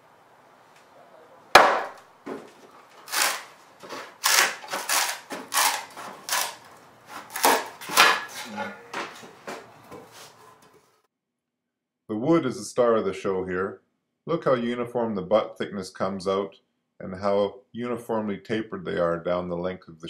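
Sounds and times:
wood cracking: 1.5s - 8.4s.

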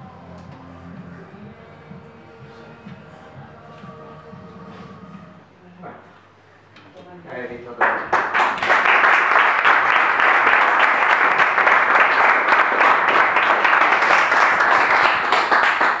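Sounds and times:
audience applauding: 7.8s - 16.0s.

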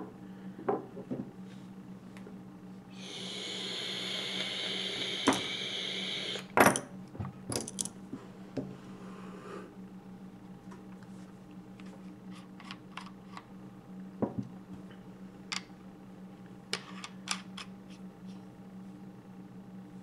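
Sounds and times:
low steady hum: 0.0s - 20.0s
steady hiss: 3.0s - 6.5s.

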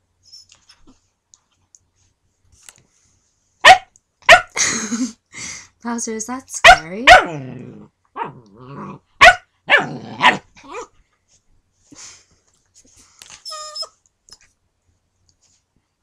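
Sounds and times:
puppy whining: 0.2s - 1.0s, 10.2s - 10.9s, 13.4s - 14.5s
puppy barking: 3.6s - 4.6s, 6.6s - 7.4s, 9.2s - 10.9s.

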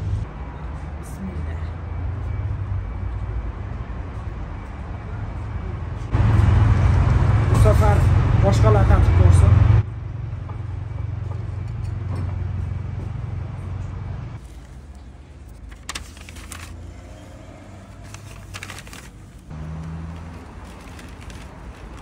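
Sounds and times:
road traffic hum: 0.0s - 22.0s
paper bags rustling: 14.4s - 22.0s.

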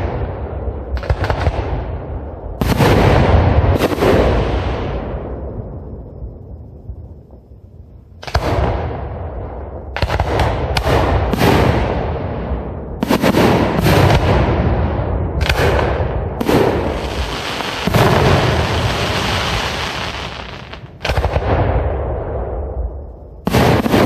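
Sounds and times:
firework shells booming: 8.2s - 22.4s, 23.4s - 24.0s.

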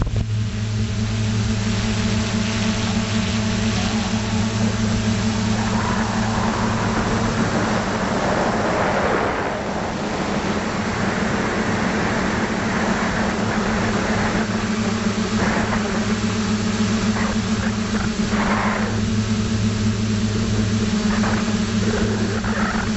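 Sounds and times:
drone motors humming: 0.0s - 22.9s
wind noise on microphone: 0.0s - 22.9s.

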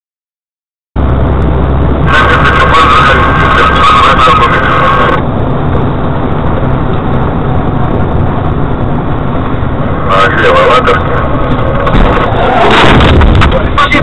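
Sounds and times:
car engine and road rumble: 1.0s - 14.0s.

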